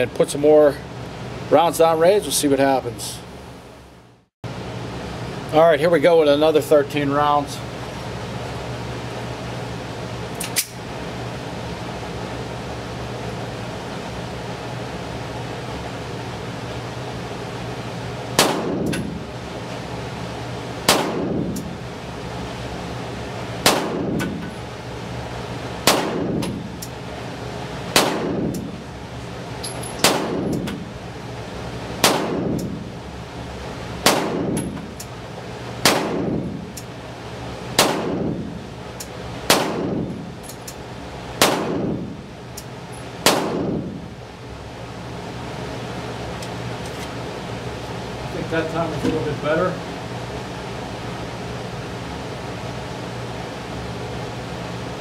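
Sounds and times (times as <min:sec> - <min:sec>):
pistol shots with ringing echo: 0:18.4 - 0:19.1, 0:20.9 - 0:21.4, 0:23.6 - 0:24.4, 0:25.8 - 0:26.6, 0:27.9 - 0:28.5, 0:30.0 - 0:30.7, 0:32.0 - 0:32.7, 0:34.0 - 0:34.7, 0:35.8 - 0:36.4, 0:37.8 - 0:38.3, 0:39.5 - 0:40.0, 0:41.4 - 0:42.0, 0:43.2 - 0:43.9.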